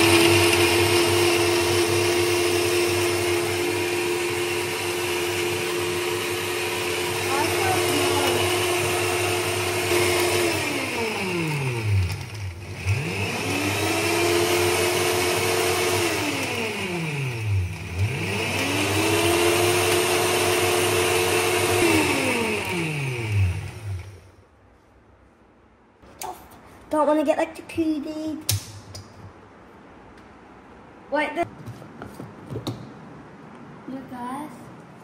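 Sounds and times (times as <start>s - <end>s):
blender motor whining: 0.0s - 24.2s.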